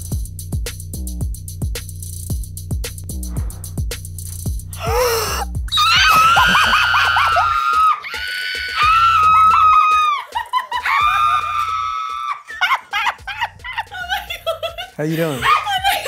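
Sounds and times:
woman screaming: 0:04.8 - 0:12.7, 0:15.3 - 0:16.0.

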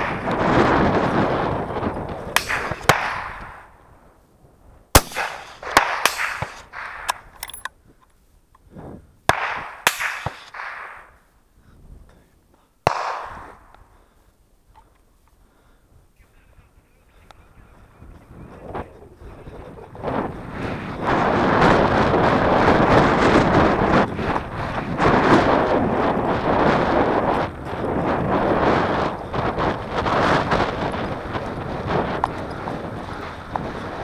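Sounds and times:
rifle shots echoing: 0:02.3 - 0:03.7, 0:04.9 - 0:07.6, 0:09.3 - 0:11.2, 0:12.8 - 0:13.8
metallic clicks and handling: 0:06.2 - 0:08.2.

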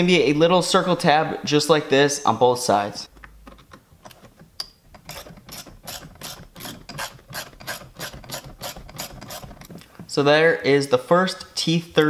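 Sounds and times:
hand ratchet clicking: 0:03.2 - 0:09.9.

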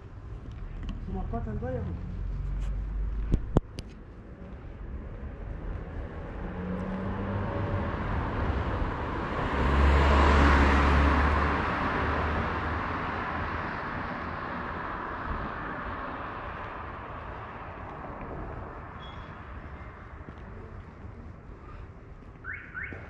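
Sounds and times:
car passing by: 0:05.4 - 0:20.0.

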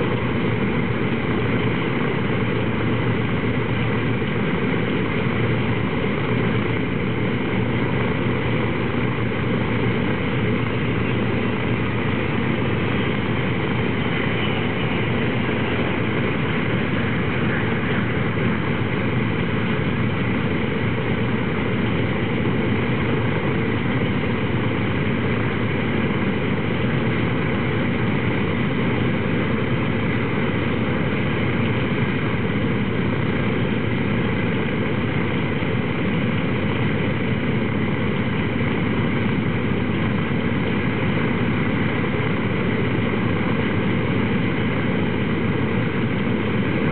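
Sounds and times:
aircraft radial engines running: 0:00.0 - 0:46.9.

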